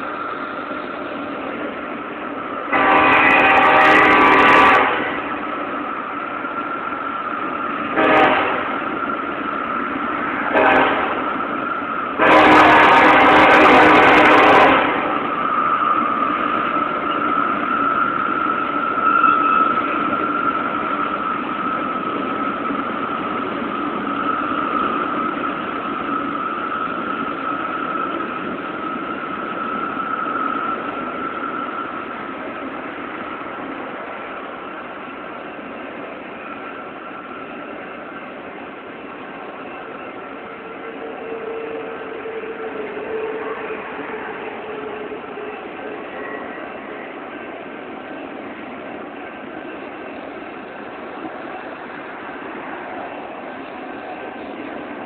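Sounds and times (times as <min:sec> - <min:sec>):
freight train rumbling and clattering: 0:00.0 - 0:55.0
locomotive air horn: 0:02.7 - 0:05.4, 0:07.9 - 0:08.8, 0:10.4 - 0:11.3, 0:12.2 - 0:15.3, 0:40.6 - 0:44.0.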